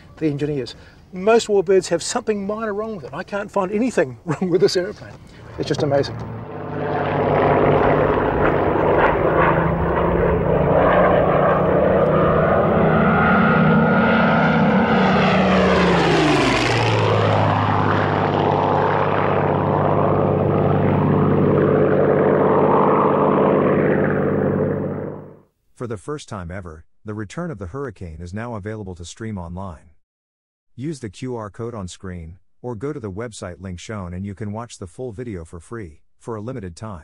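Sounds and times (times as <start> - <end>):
propeller plane engine flypast: 4.6 - 25.4.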